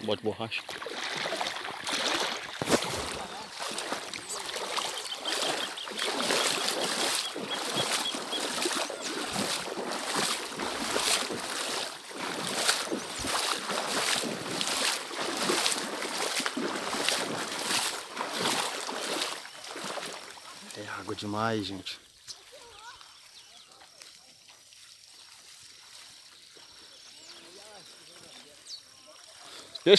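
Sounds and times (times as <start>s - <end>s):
boots wading through water: 0.5s - 29.9s.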